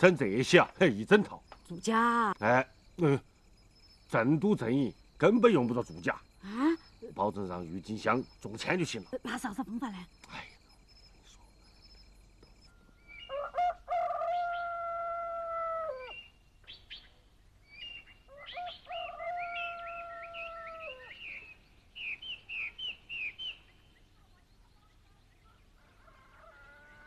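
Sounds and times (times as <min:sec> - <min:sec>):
small birds chirping: 0:00.0 - 0:13.6, 0:16.0 - 0:26.5
rooster crowing: 0:13.2 - 0:16.2, 0:18.3 - 0:21.2, 0:25.9 - 0:27.0.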